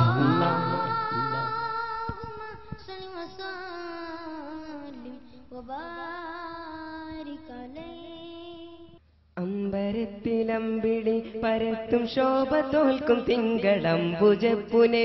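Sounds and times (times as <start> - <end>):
boy singing into a microphone: 0.0 - 15.0.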